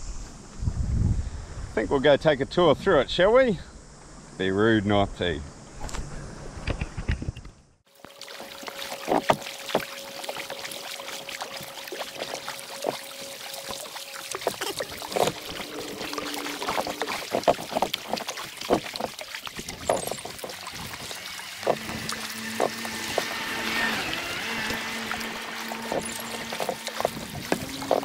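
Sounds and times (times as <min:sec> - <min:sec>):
paddle splashing in water: 0:07.9 - 0:28.0.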